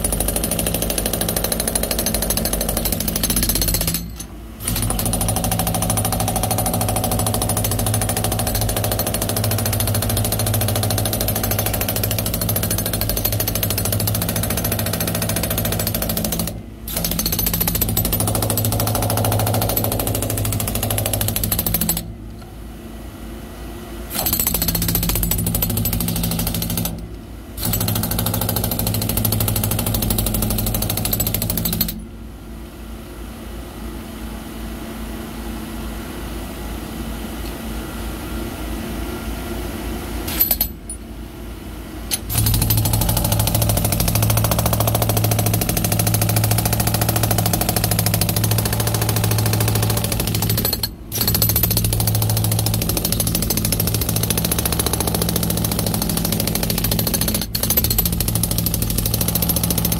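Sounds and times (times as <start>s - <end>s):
jackhammer chipping concrete: 0.0s - 22.1s, 42.3s - 59.9s.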